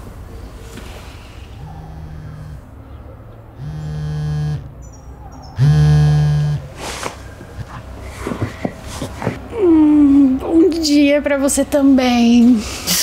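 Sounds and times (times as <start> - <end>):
mobile phone vibrating: 1.6 - 2.6, 3.6 - 4.7, 5.6 - 6.7.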